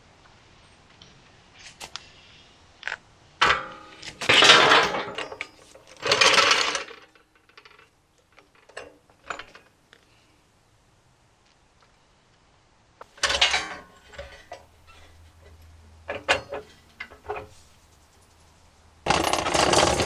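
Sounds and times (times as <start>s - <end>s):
metal tool clicks and clanks: 2.8s - 9.7s, 13.0s - 17.5s.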